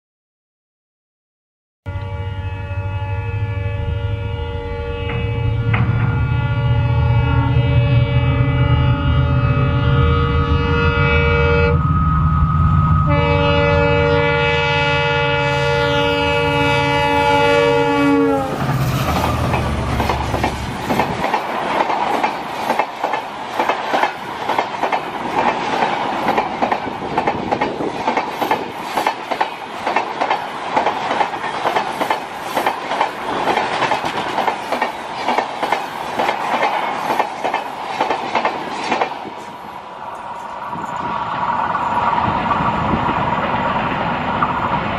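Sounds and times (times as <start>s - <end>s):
locomotive horn: 1.9s - 12.0s, 13.0s - 20.0s
locomotive engine rumble: 15.3s - 21.7s
train wheels clickety-clack: 18.5s - 44.9s.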